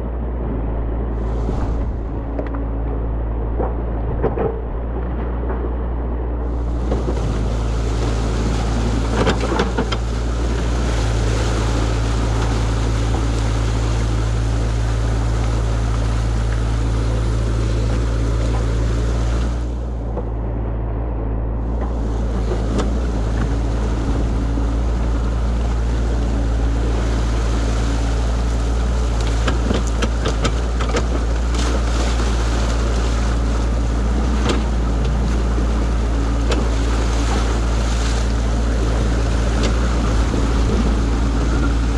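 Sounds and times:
excavator engine running: 0.0 - 41.9
floodwater rushing: 0.0 - 41.9
sharp clicks and knocks: 1.5 - 6.0, 9.0 - 10.1, 29.2 - 31.7.

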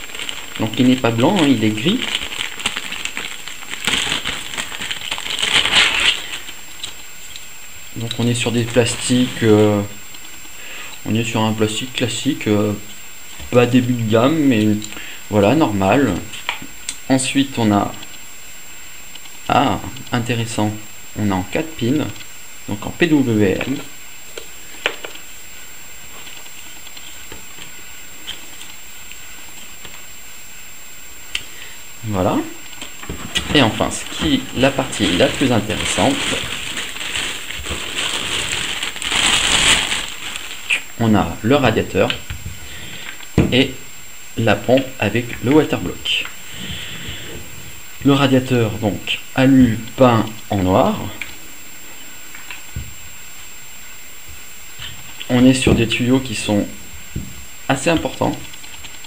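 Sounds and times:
plastic bag crinkling: 0.0 - 7.0, 32.8 - 41.0
steady background hiss: 0.0 - 59.0.

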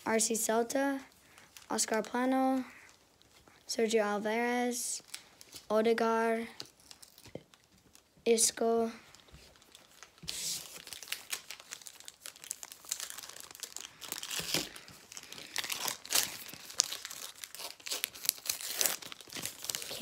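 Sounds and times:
card pack wrapper tearing and crinkling: 6.6 - 8.1, 9.1 - 20.0.

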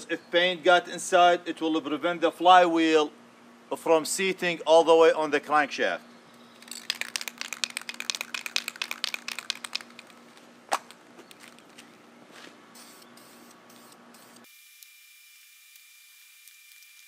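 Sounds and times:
spray paint hissing: 6.6 - 10.3
spray can ball rattling: 6.6 - 10.9.

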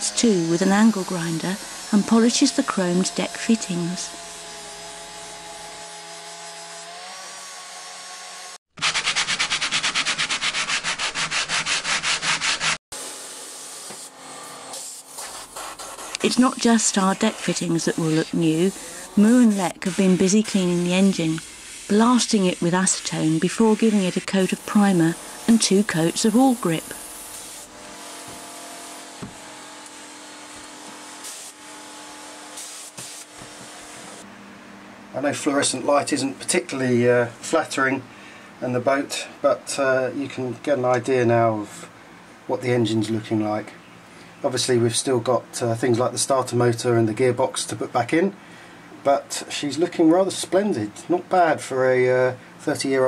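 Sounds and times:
angle grinder polishing: 0.0 - 8.6, 11.4 - 34.3
paint spray gun hissing: 13.0 - 31.6, 32.5 - 34.2.

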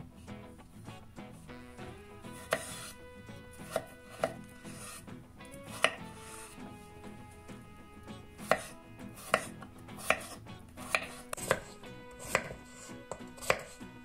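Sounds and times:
knife chopping on wooden board: 2.3 - 3.0, 3.6 - 5.0, 5.6 - 6.5, 8.4 - 13.8.

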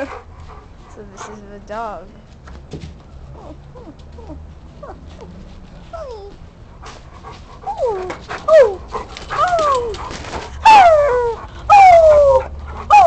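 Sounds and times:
dog whining: 3.3 - 6.4, 7.6 - 13.0.

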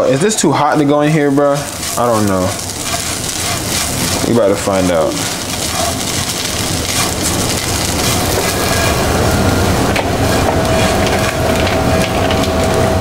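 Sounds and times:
eggs sizzling in a frying pan: 0.0 - 12.5
steady tone: 1.2 - 13.0
spatula scraping a pan: 1.4 - 9.3, 10.2 - 11.8.

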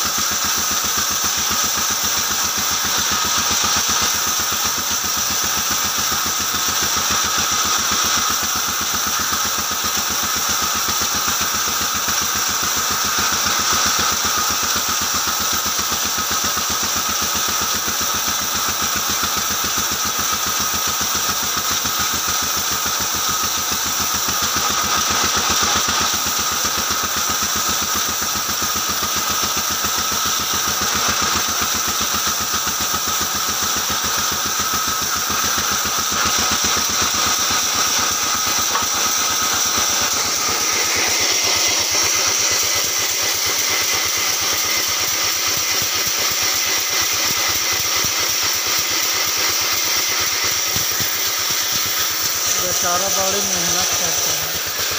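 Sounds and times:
high machine whine: 33.9 - 54.9.

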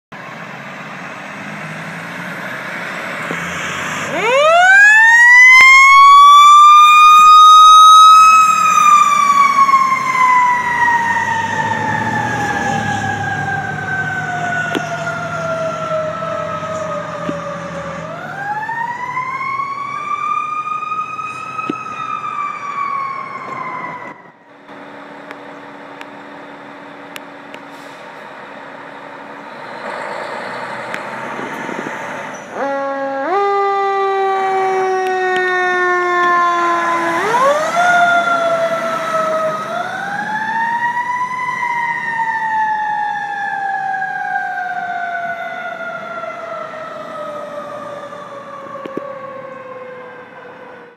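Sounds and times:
truck engine: 0.1 - 50.9
mechanical siren wailing: 4.1 - 24.5, 32.4 - 50.9.

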